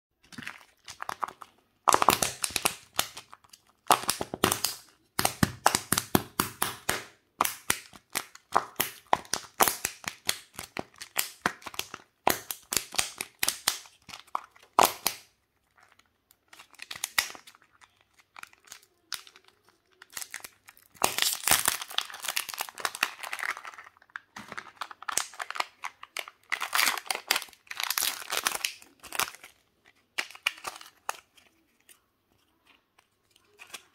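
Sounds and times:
plastic packaging crinkling: 12.7 - 33.9
plastic eggs clattering: 15.8 - 31.5.

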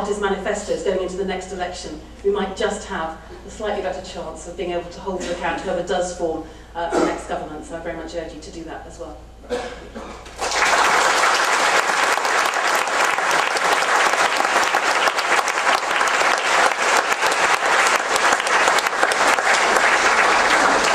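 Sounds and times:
audience applauding: 10.2 - 20.9.

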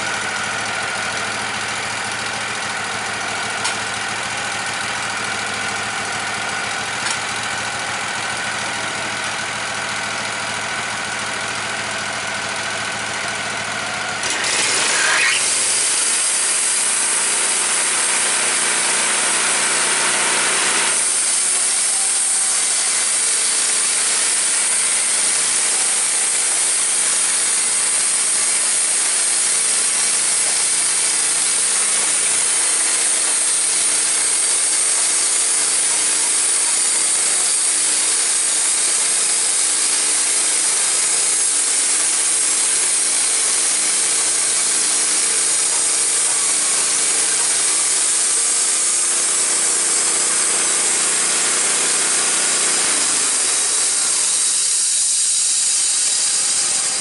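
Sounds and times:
engine running under load: 0.0 - 57.0
band saw cutting wood: 13.4 - 57.0.

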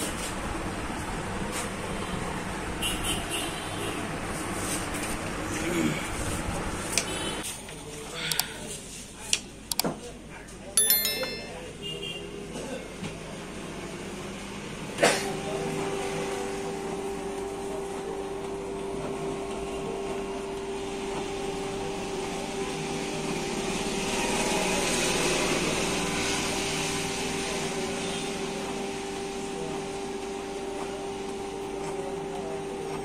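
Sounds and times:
printer motor humming and whirring: 14.7 - 33.0.

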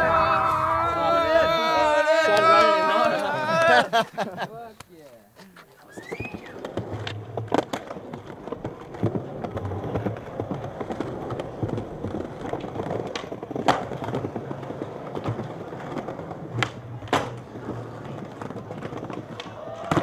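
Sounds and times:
skateboard wheels rolling on stone: 0.0 - 3.9, 5.6 - 20.0
skateboard clacking on ground: 5.4 - 20.0.

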